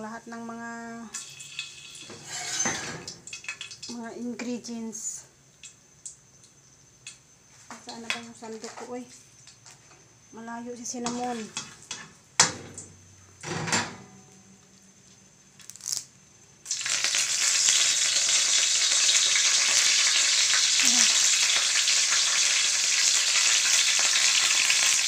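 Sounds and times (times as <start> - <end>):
oil sizzling and crackling: 1.1 - 4.5, 5.5 - 13.5, 14.2 - 25.0
utensil clattering against wok: 11.0 - 12.8.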